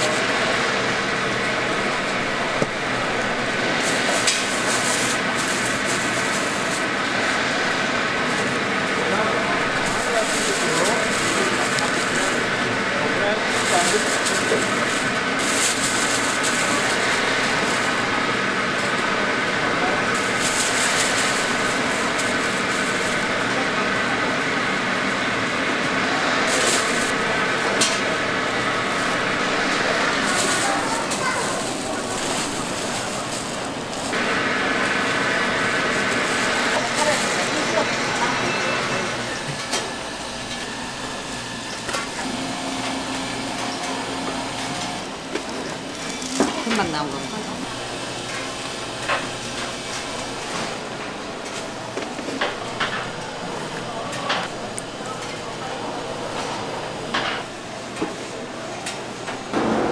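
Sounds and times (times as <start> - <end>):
shop noise hiss: 0.0 - 59.9
plastic bag crinkling: 1.6 - 23.5, 26.2 - 38.0, 45.2 - 47.8.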